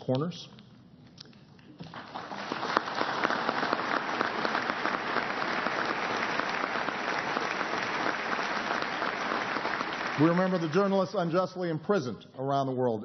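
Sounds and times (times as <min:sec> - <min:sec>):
audience applauding: 0:01.8 - 0:11.4.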